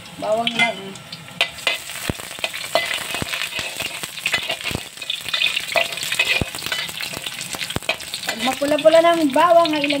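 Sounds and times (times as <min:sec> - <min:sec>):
garlic sizzling in hot oil: 0:00.0 - 0:10.0
metal spatula scraping wok: 0:01.4 - 0:08.6.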